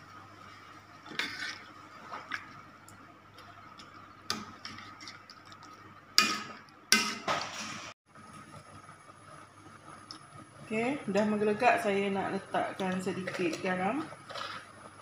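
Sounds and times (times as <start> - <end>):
metal spoon scraping a wok: 1.1 - 1.7.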